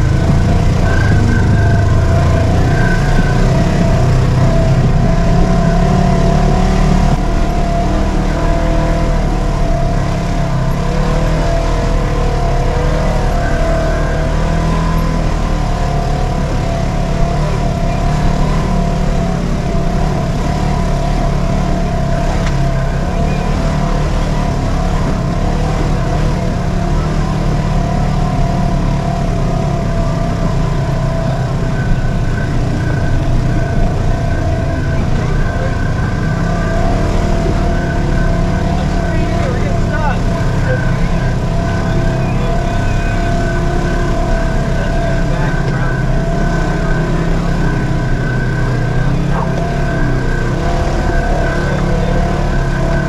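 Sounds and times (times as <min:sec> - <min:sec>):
steady whine: 0:00.0 - 0:53.0
vehicle engine running: 0:00.0 - 0:53.0.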